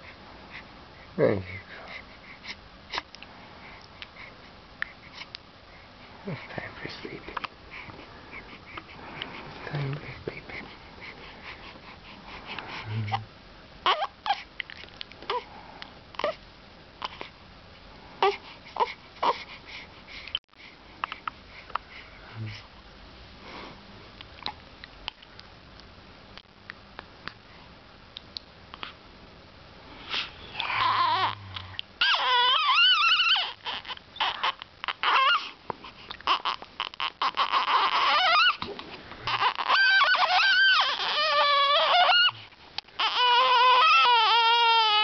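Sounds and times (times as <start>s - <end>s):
baby crying: 13.8s - 14.4s, 30.6s - 35.5s, 36.2s - 38.6s, 39.3s - 42.4s, 43.0s - 45.0s.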